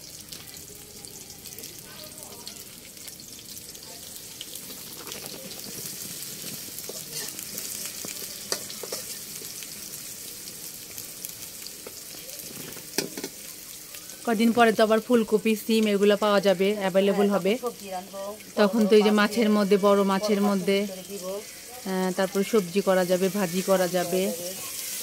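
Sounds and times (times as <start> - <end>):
onion sizzling in hot oil: 0.0 - 25.0
metal spatula scraping pan: 5.6 - 7.8, 8.5 - 9.5.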